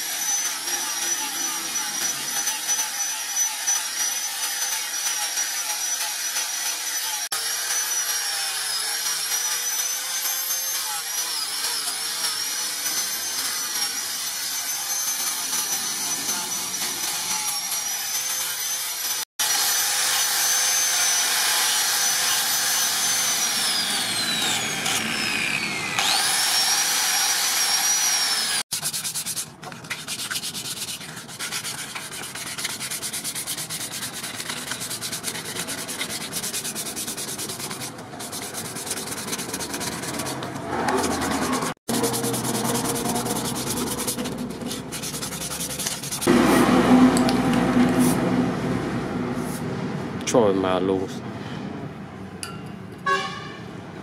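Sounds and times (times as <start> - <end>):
angle grinder sanding wood: 0.0 - 48.4
sandpaper rubbing on wood: 28.7 - 46.3.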